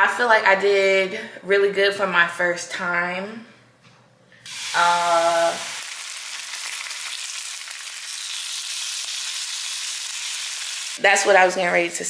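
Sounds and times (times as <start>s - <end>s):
bacon sizzling in a pan: 4.5s - 11.0s.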